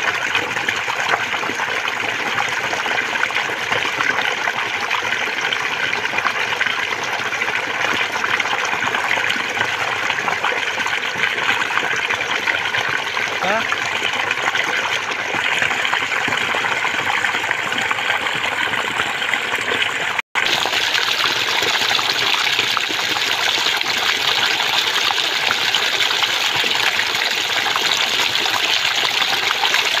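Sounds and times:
water gushing and splashing: 0:00.0 - 0:30.0.

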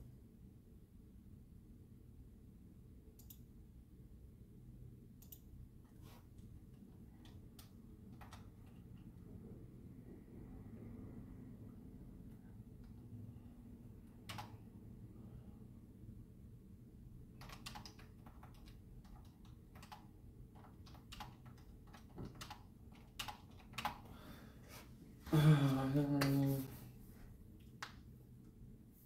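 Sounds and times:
typing on computer keyboard: 0:07.2 - 0:09.0, 0:14.2 - 0:14.6, 0:17.3 - 0:24.1
person making low vocal sound: 0:25.3 - 0:26.8.

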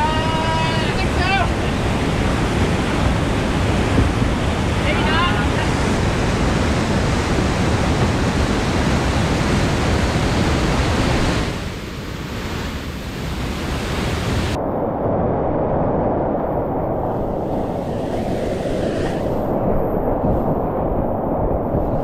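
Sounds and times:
whitewater rushing down a creek: 0:00.0 - 0:14.6.

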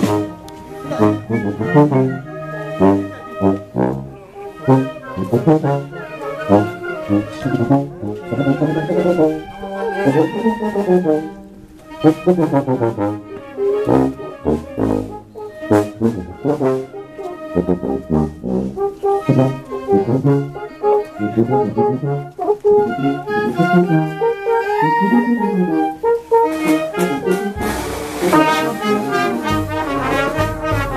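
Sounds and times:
brass band playing: 0:00.0 - 0:30.9
bass drum beats: 0:29.5 - 0:30.9.

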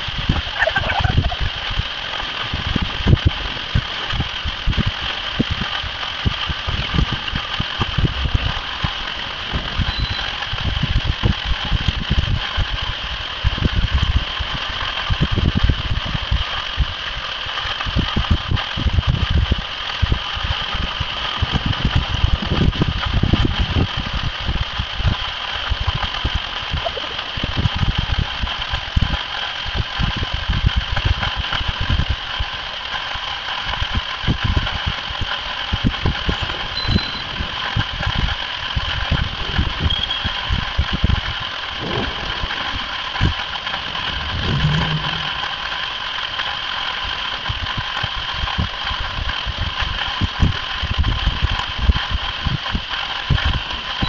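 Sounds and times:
low rumbling: 0:00.0 - 0:25.2, 0:33.6 - 0:54.0
water jet rushing: 0:35.0 - 0:48.9.

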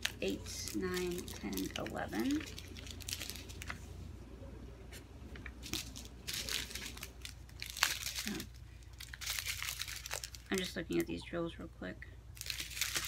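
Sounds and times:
plastic bags crinkling: 0:00.0 - 0:03.9, 0:05.4 - 0:11.2, 0:12.4 - 0:13.0.

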